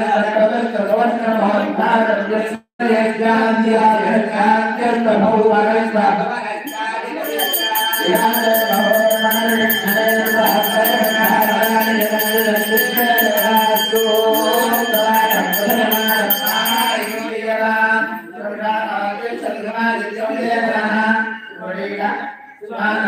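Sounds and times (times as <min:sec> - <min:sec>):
mantra chanting: 0:00.0 - 0:23.0
bell rung rapidly: 0:06.7 - 0:17.5.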